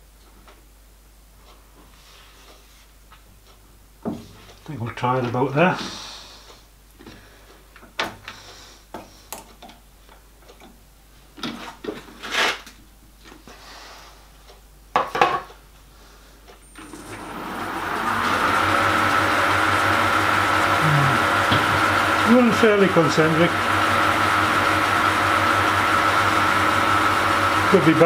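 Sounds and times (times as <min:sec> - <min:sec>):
lathe motor humming with whine: 0:16.8 - 0:28.0.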